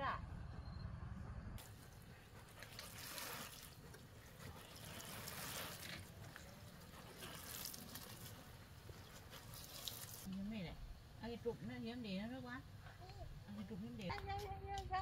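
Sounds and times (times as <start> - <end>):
watering can spraying water: 1.6 - 10.3.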